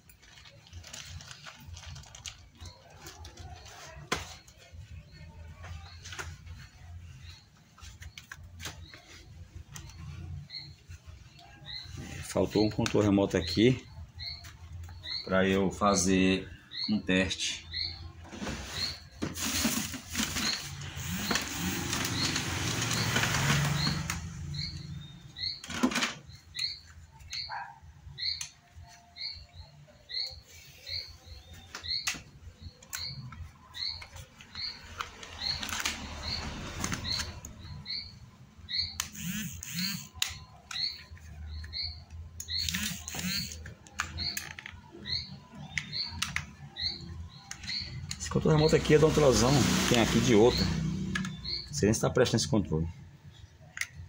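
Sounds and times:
rustling handling noise: 0.0 - 13.5, 18.2 - 27.7
small bird chirping: 0.4 - 49.6, 50.2 - 51.8.

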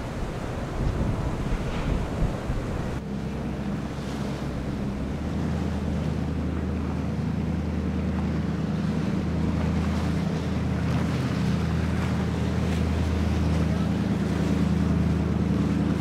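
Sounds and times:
wind on microphone: 0.0 - 3.0
speedboat engine humming: 0.0 - 16.0.

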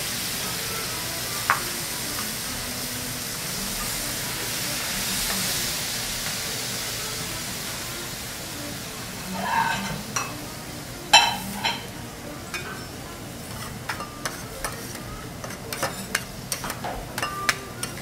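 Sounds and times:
fat sizzling: 0.0 - 18.0
spatulas scraping and clinking on griddle: 9.3 - 10.4, 11.1 - 11.9, 12.5 - 18.0.

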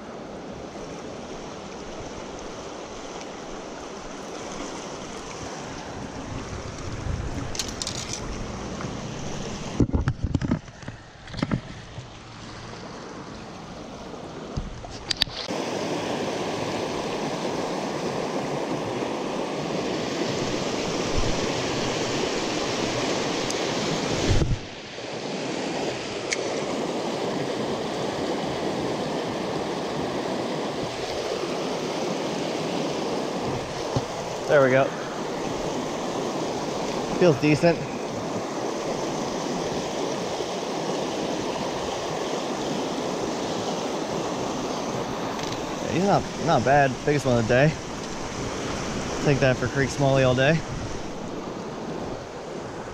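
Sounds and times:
water rushing over rocks: 0.0 - 52.9
wind buffeting microphone: 4.8 - 12.1, 16.9 - 24.8, 33.0 - 52.9.

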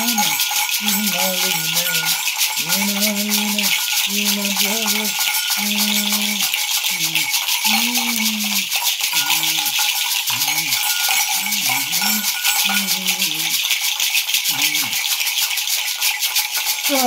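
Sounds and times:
man chanting: 0.0 - 13.6, 14.5 - 15.0
gourd rattles and bells jingling: 0.0 - 17.0.

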